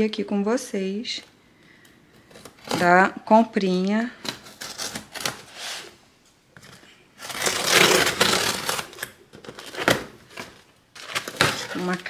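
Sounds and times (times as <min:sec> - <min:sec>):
blade ripping packing tape: 0:04.2 - 0:05.9, 0:07.2 - 0:12.0.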